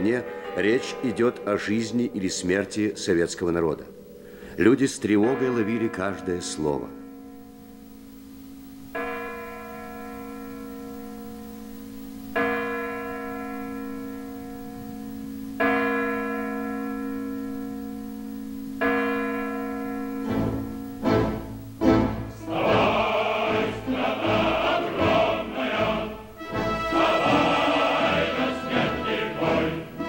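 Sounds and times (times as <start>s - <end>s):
low musical drone: 20.2s - 30.0s.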